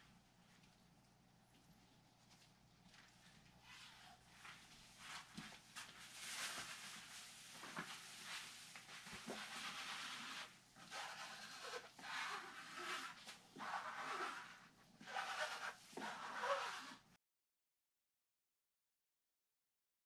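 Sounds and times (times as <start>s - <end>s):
scratchy brushing and rustling: 3.6s - 17.0s.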